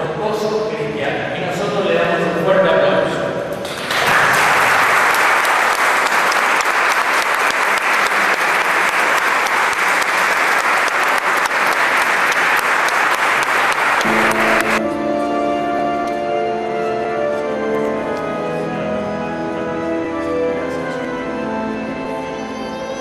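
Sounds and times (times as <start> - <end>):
crowd applauding: 3.6 - 14.8
instrumental music: 13.6 - 23.0.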